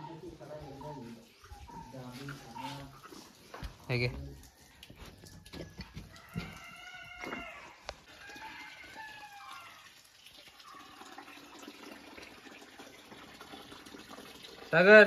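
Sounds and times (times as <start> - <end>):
rooster crowing: 4.5 - 9.9.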